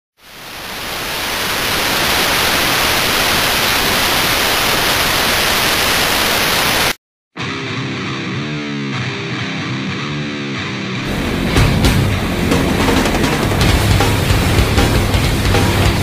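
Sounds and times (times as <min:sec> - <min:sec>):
television static hiss: 0:00.2 - 0:07.0
heavy metal guitar music: 0:07.4 - 0:16.0.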